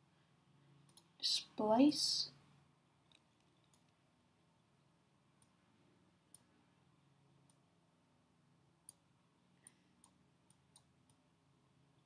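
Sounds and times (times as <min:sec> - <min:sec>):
faint computer mouse clicks: 0:00.8 - 0:01.1, 0:03.1 - 0:04.0, 0:06.3 - 0:06.5, 0:08.8 - 0:09.0, 0:09.6 - 0:11.2.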